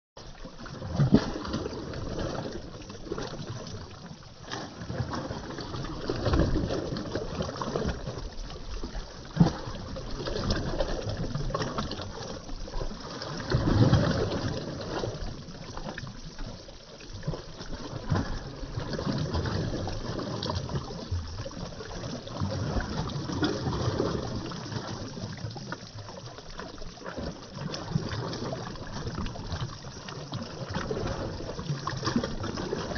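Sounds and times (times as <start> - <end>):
waves lapping against shore: 0.3 - 32.9.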